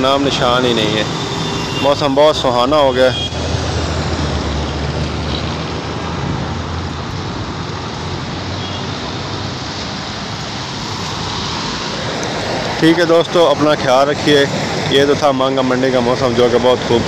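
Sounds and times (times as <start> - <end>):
tyre hiss on wet road: 9.6 - 12.9.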